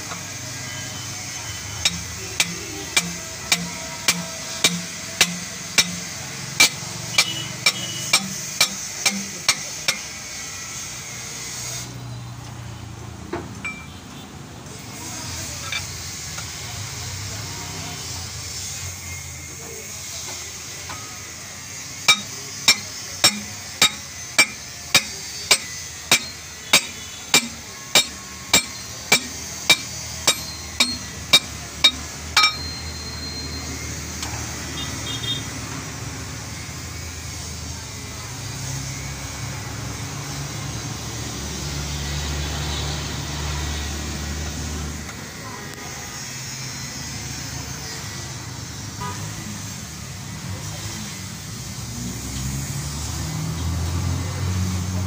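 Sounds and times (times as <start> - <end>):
hammer blows on steel: 1.8 - 10.2, 22.0 - 32.9.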